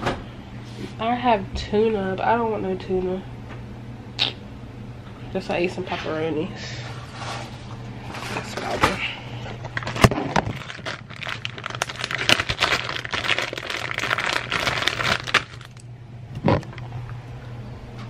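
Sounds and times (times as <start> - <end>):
plastic bag crinkling: 9.6 - 15.9.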